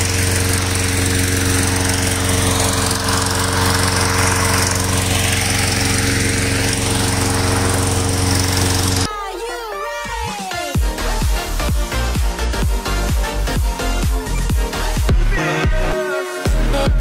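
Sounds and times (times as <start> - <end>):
inflator fan engine hum: 0.0 - 9.1.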